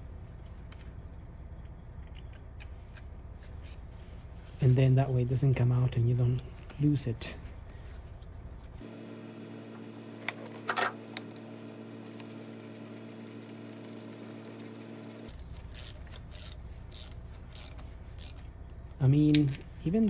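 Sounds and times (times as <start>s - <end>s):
steady low hum: 0.0s - 20.0s
socket ratchet clicking: 15.3s - 18.5s.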